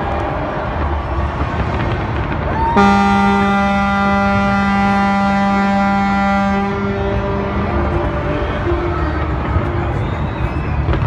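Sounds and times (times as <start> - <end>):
low rumble of fireworks: 0.0 - 11.0
higher horn or whistle: 2.8 - 8.9
deep ship's horn blast: 2.8 - 9.4.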